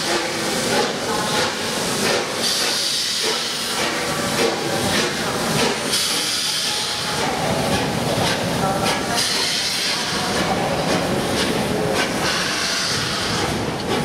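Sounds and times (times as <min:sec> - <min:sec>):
steam hissing in surges: 0:00.0 - 0:14.0
steam locomotive moving off: 0:00.0 - 0:14.0.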